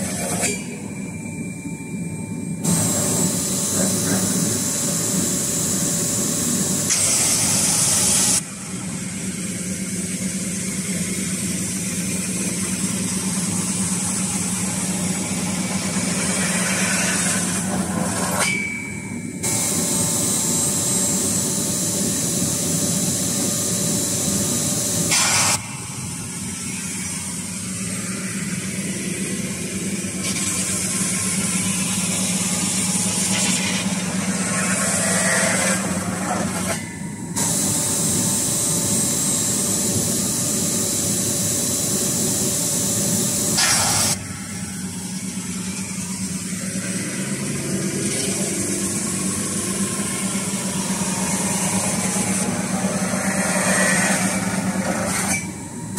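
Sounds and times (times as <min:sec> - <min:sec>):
machine spindle humming: 0:00.0 - 0:08.8, 0:19.3 - 0:25.7, 0:31.0 - 0:55.9.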